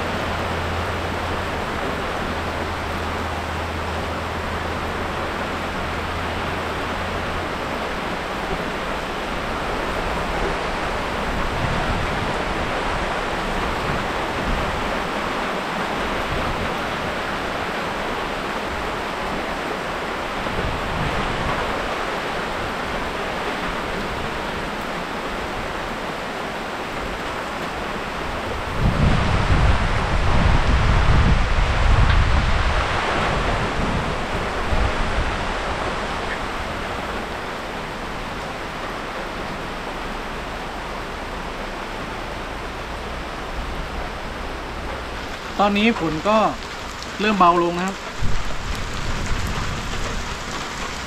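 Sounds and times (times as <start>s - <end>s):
heavy rain falling: 0.0s - 51.0s
wind hitting microphone: 9.4s - 15.3s, 28.1s - 38.3s, 48.0s - 51.0s.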